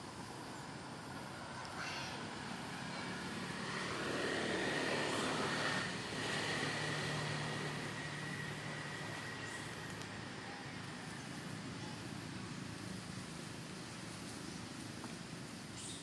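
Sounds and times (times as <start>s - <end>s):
low engine hum: 0.0s - 16.0s
vehicle passing: 1.0s - 11.6s.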